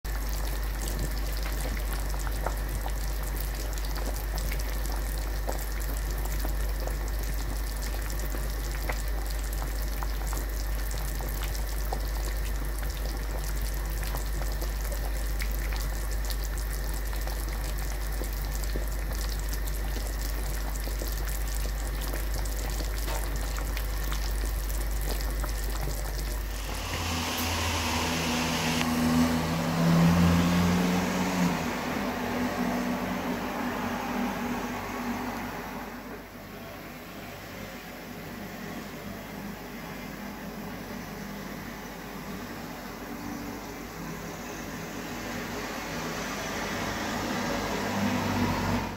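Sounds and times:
low steady hum: 0:00.0 - 0:27.9
soup bubbling at a boil: 0:00.0 - 0:36.4.

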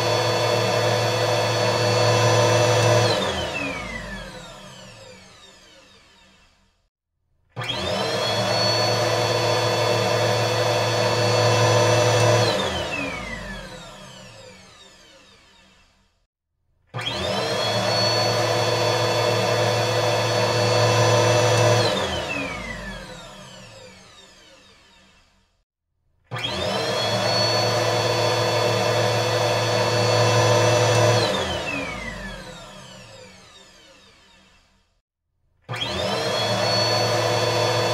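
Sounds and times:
vacuum cleaner motor whine: 0:00.0 - 0:06.6, 0:07.6 - 0:16.0, 0:17.0 - 0:25.4, 0:26.3 - 0:34.8, 0:35.7 - 0:37.9.

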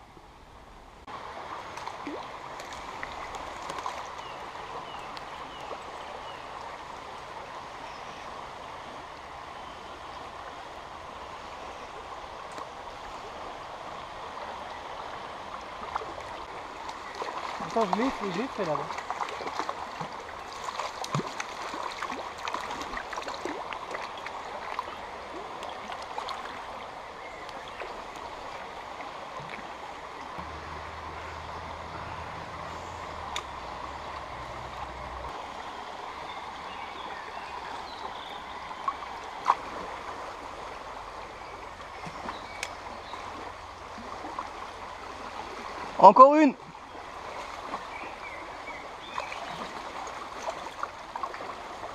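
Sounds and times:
river rushing over riffles: 0:01.0 - 0:42.0.

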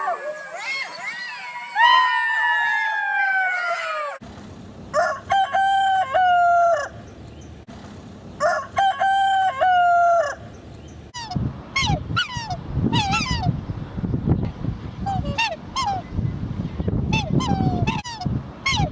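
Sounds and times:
rooster crowing: 0:05.0 - 0:07.0, 0:08.4 - 0:10.4
swans honking: 0:11.1 - 0:13.6, 0:15.1 - 0:16.0, 0:17.1 - 0:18.9.

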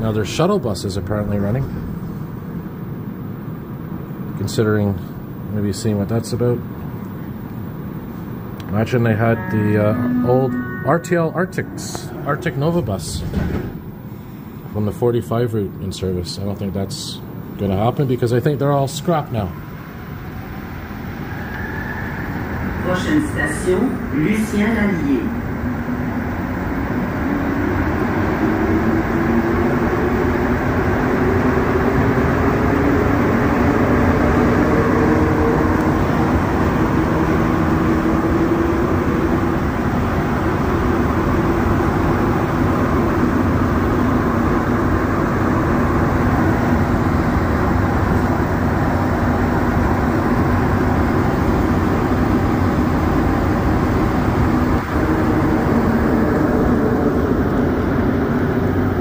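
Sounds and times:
subway train running in tunnel: 0:00.0 - 0:59.0
train motor tones rising: 0:08.9 - 0:13.7, 0:51.6 - 0:58.7.

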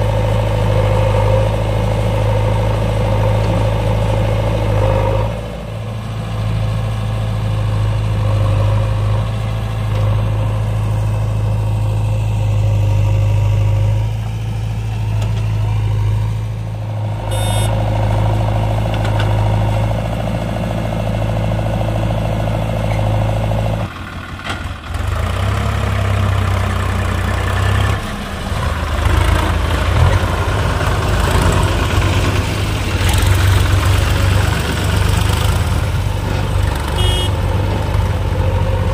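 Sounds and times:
diesel engines droning: 0:00.0 - 0:38.9.

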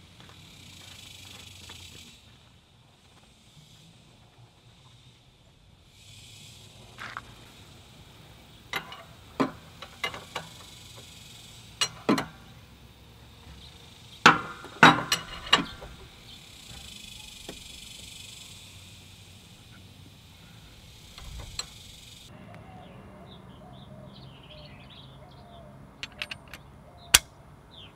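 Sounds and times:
wrench clinking on metal: 0:08.7 - 0:11.1, 0:11.8 - 0:12.5, 0:14.3 - 0:16.1, 0:26.0 - 0:27.3.

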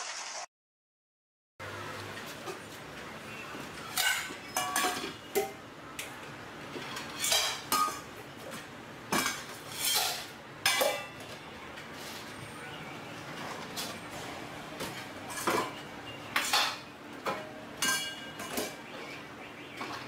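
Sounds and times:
dishes and utensils clinking: 0:03.7 - 0:06.1, 0:06.7 - 0:12.7, 0:13.4 - 0:19.2.

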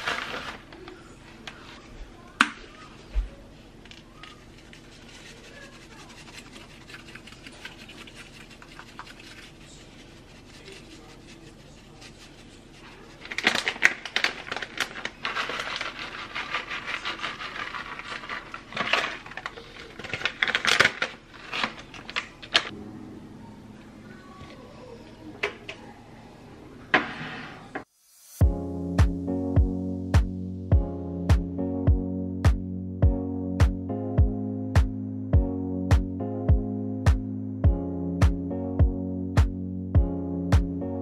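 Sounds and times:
plastic bag crinkling: 0:00.0 - 0:00.8, 0:11.6 - 0:22.7
plastic shaker shaking: 0:04.2 - 0:21.7.

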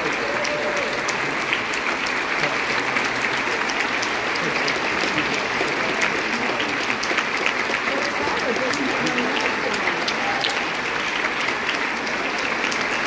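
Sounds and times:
crowd applauding: 0:00.0 - 0:13.0.

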